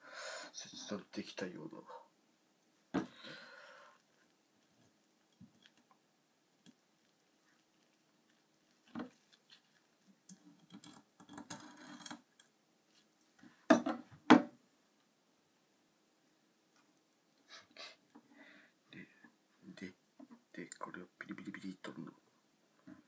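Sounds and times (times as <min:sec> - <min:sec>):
scraping and rustling: 0:04.1 - 0:12.3.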